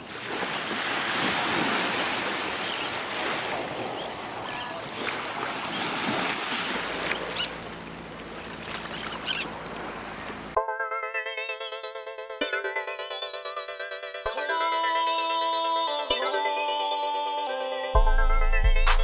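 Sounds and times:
waves washing on shore: 0.0 - 10.6
short high bird calls: 8.8 - 9.5.

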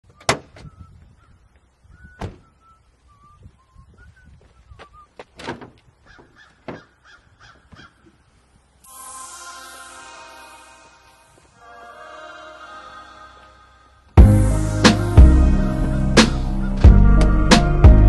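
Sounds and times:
birds chirping: 0.0 - 9.8
car hood clicks and knocks: 5.4 - 6.9.

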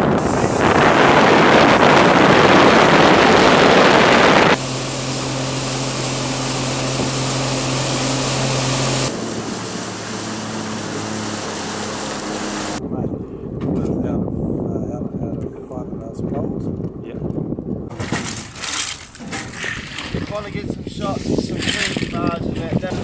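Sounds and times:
water noise: 0.0 - 12.9, 17.9 - 23.0
motorboat engine drone: 0.0 - 13.6
wind on microphone: 0.0 - 23.0.

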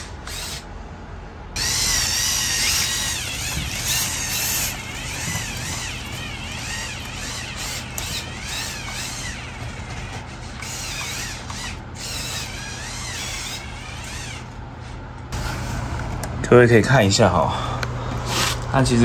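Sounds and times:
toy truck motors whining: 0.0 - 0.7, 1.6 - 14.6
steady low hum: 0.0 - 19.0.

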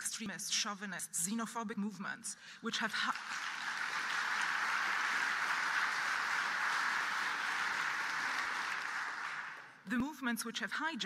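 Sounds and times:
audience applauding: 3.0 - 9.8.

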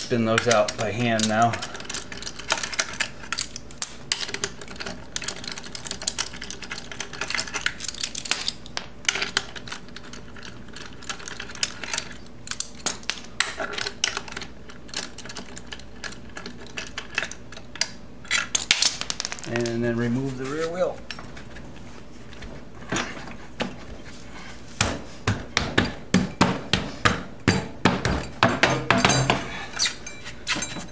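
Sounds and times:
metal bolts clicking and clinking: 0.0 - 19.9, 27.5 - 30.9.

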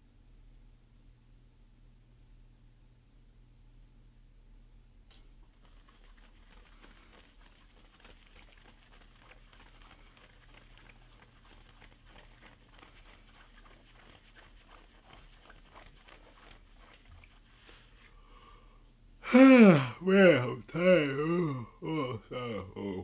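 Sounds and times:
low room hum: 0.0 - 23.0
fingers scratching cap on scalp: 5.5 - 17.8.

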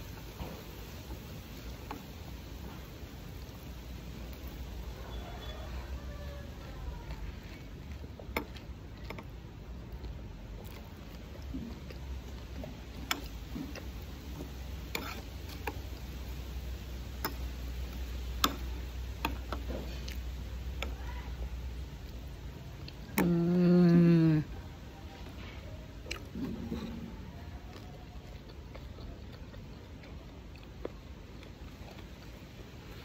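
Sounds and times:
low steady hum: 0.0 - 33.0
chewing mouth sounds: 25.4 - 33.0.

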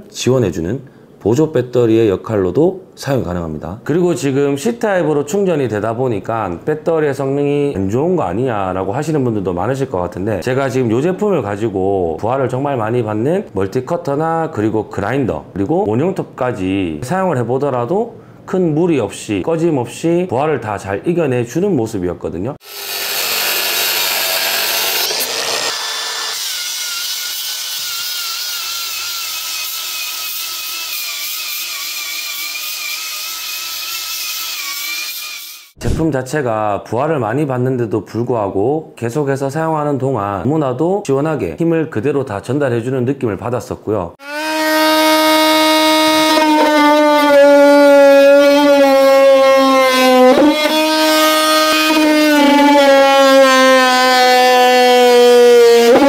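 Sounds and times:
angle grinder cutting steel: 22.6 - 35.8, 44.2 - 56.0.

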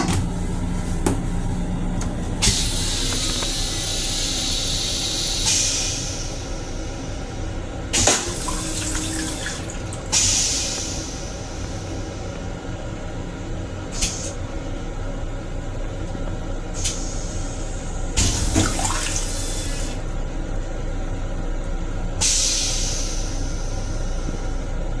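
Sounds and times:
toilet flushing: 2.4 - 12.3, 16.8 - 20.1.

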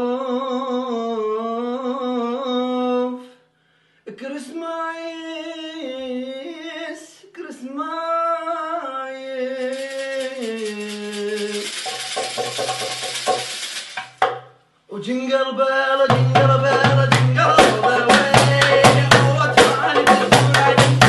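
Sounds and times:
man singing unaccompanied: 0.0 - 3.4, 4.1 - 13.8, 14.9 - 21.0
tambourine shaking: 9.5 - 14.3.

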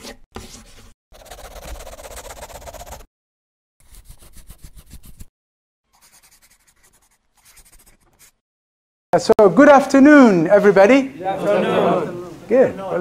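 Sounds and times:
pencil scribbling on paper: 0.0 - 3.1, 3.8 - 5.3, 5.9 - 8.4.

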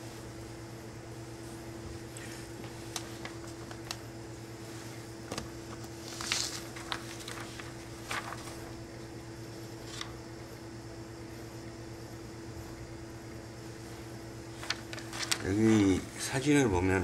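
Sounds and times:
machine hum: 0.0 - 17.0
cloth and paper rustling: 1.9 - 8.9, 9.8 - 10.2, 14.5 - 16.3.

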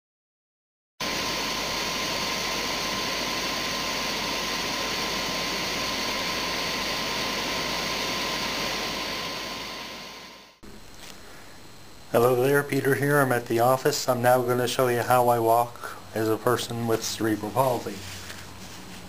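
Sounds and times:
loud rushing hiss: 1.0 - 11.7.

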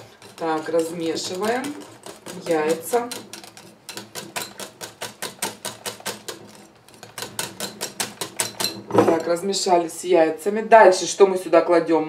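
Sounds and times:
whisk beating batter in glass bowl: 0.0 - 9.4.

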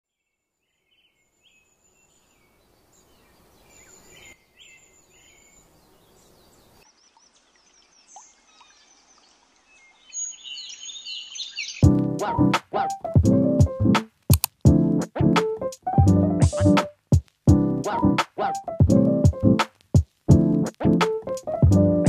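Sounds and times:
faint outdoor background noise: 0.1 - 14.7
birds chirping and singing: 0.7 - 9.2, 9.8 - 11.8.

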